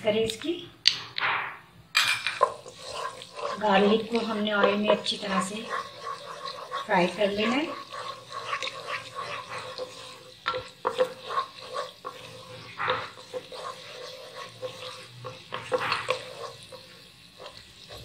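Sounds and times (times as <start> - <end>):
garlic frying in hot oil: 2.2 - 18.0
wooden spatula scraping a pan: 2.2 - 18.0.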